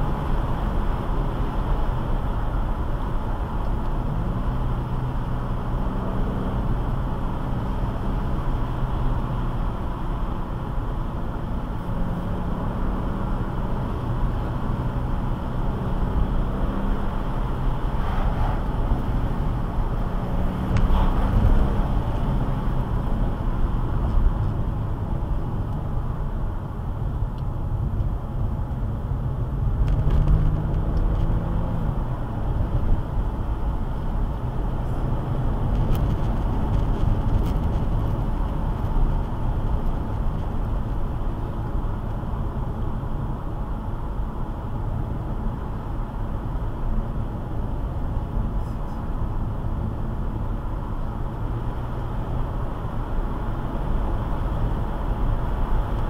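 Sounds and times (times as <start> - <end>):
car engine and tyre rumble: 0.0 - 56.0.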